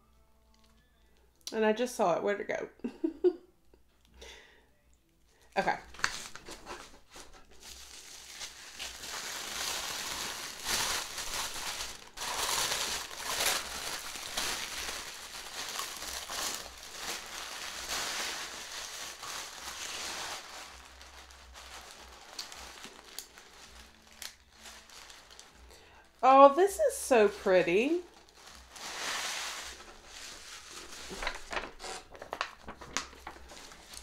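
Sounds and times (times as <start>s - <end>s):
packaging crinkling and rustling: 5.8s - 26.3s, 27.1s - 34.0s.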